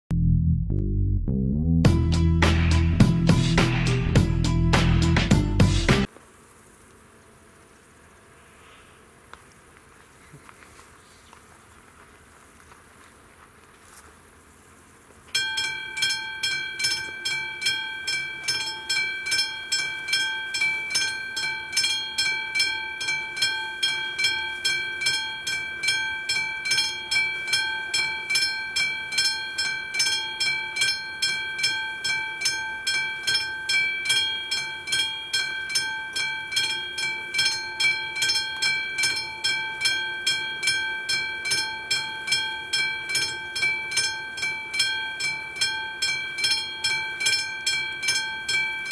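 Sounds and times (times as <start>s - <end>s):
level crossing warning bell ringing: 15.4s - 48.9s.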